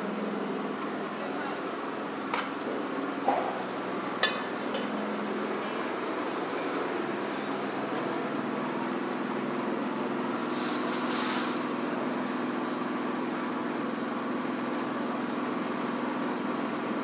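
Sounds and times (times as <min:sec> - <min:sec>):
street noise: 0:00.0 - 0:15.4
short hiss: 0:10.5 - 0:11.6.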